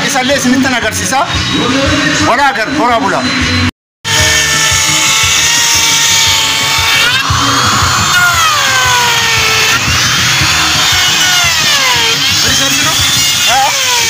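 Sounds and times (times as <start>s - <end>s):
electric router whining: 3.1s - 14.0s.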